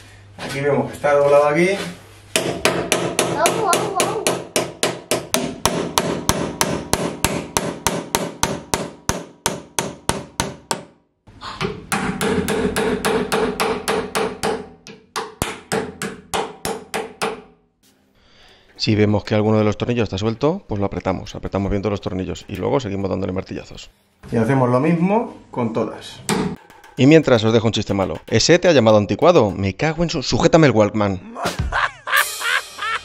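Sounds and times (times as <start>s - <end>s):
hammer striking metal hinge: 2.4s - 10.9s, 11.6s - 17.5s, 26.3s - 29.6s.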